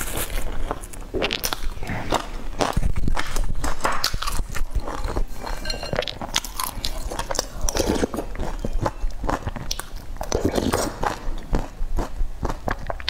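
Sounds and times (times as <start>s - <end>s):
chewing food: 0.0s - 13.0s
spoon on ceramic bowl: 5.0s - 6.2s.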